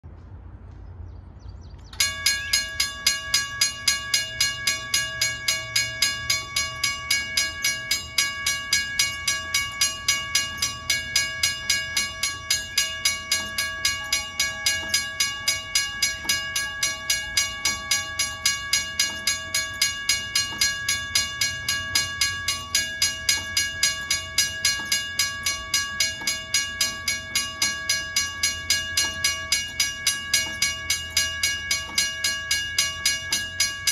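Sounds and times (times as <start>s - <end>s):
railroad crossing bell ringing: 1.9s - 33.9s.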